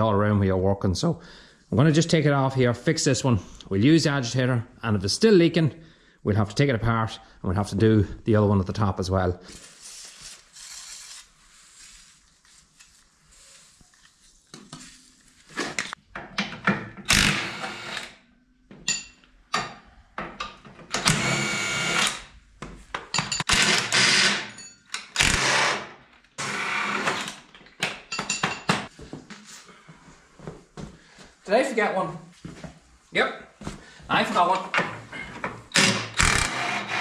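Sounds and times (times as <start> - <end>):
impact gun undoing bolts: 23.2 - 25.8, 35.7 - 37.0.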